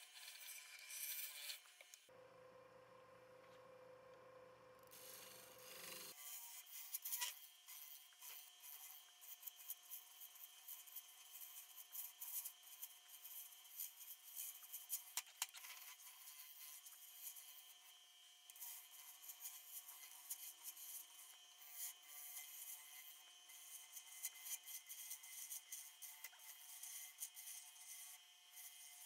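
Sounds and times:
lathe tool scraping wood: 18.5 - 29.0.

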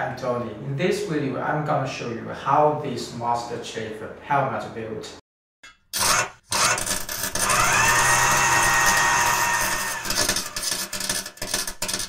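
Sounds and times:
electric power tool rasping: 5.9 - 12.0
high whine: 6.7 - 11.0.

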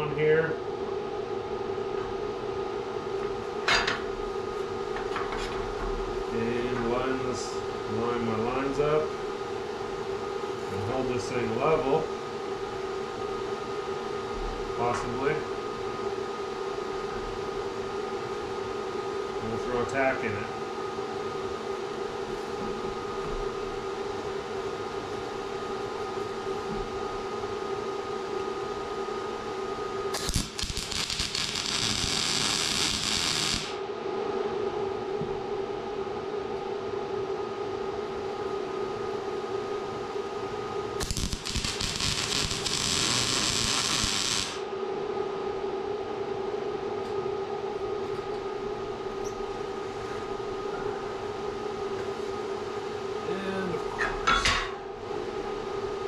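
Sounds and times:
steady hum: 0.0 - 56.0
welding arc crackling hiss: 30.1 - 33.8, 41.0 - 44.7.

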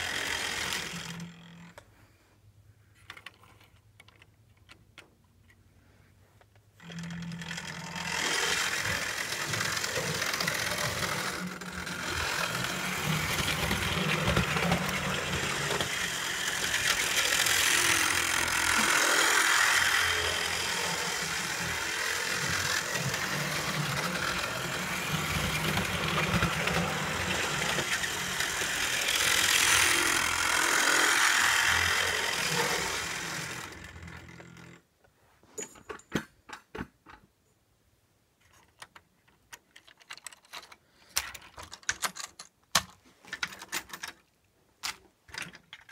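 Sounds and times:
model train motor whirring: 0.0 - 1.8, 6.8 - 34.8
wheels rattling over track: 8.0 - 34.6.

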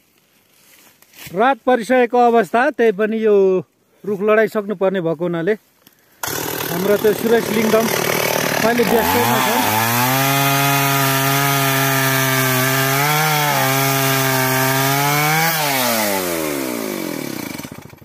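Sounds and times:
chainsaw cutting wood: 6.2 - 18.0.

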